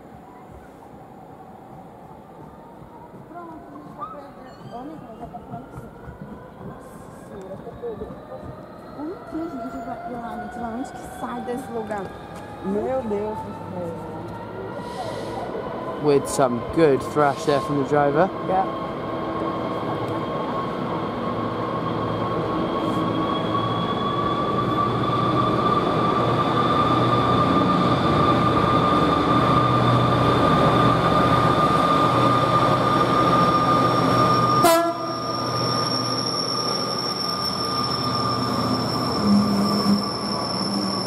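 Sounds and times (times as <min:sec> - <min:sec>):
wagons squealing: 0:31.4 - 0:41.0.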